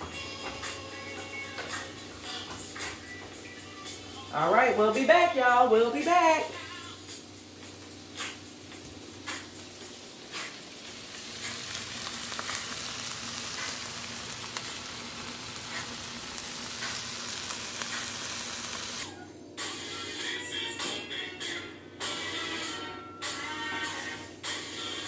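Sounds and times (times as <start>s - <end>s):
vegetables sizzling in pans: 5.7s - 19.1s.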